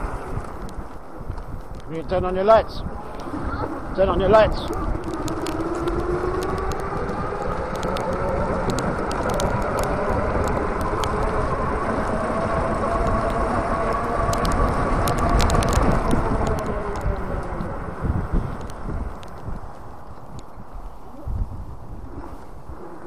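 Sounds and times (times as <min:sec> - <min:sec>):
wind and road noise: 0:00.0 - 0:23.0
electric bike motor whining: 0:03.1 - 0:19.7.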